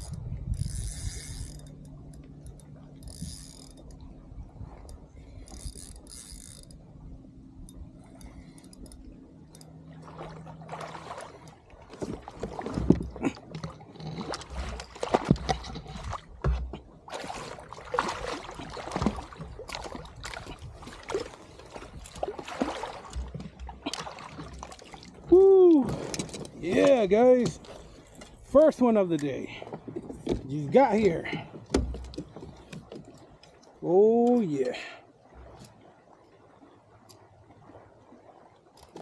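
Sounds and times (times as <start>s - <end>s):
fish splashing and thrashing: 7.7s - 28.5s, 29.5s - 33.8s.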